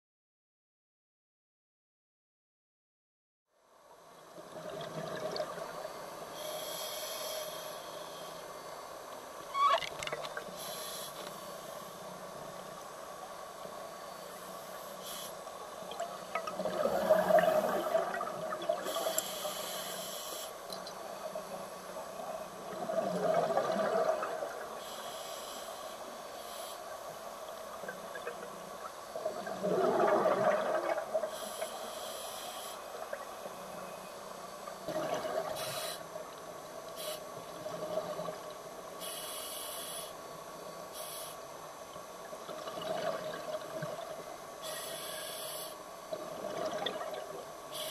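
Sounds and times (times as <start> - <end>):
exhaled bubbles underwater: 4.4 - 5.9, 15.8 - 19.2, 22.5 - 24.8, 27.8 - 31.4, 34.8 - 35.8, 42.4 - 44.3, 46.1 - 47.6
scuba regulator breathing: 6.4 - 8.4, 10.6 - 11.9, 18.9 - 20.6, 24.8 - 26.9, 31.3 - 32.9, 39.0 - 40.2, 44.6 - 45.8.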